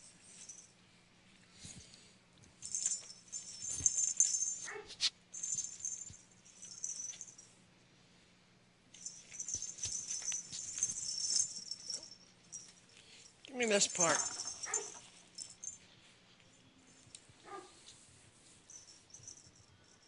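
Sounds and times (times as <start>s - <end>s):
small bells jingling: 2.6s - 7.6s, 8.9s - 16.1s, 17.8s - 20.0s.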